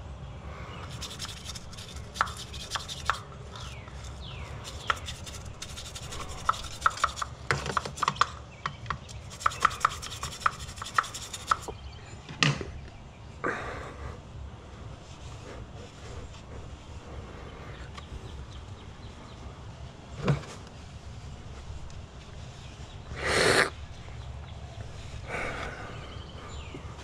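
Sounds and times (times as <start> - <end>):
tool scraping and clicking on metal: 0.8 - 8.4, 9.1 - 11.7.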